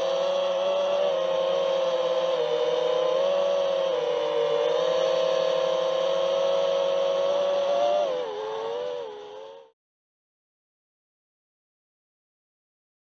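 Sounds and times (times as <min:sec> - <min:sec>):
model aircraft motor whining: 0:00.0 - 0:09.8.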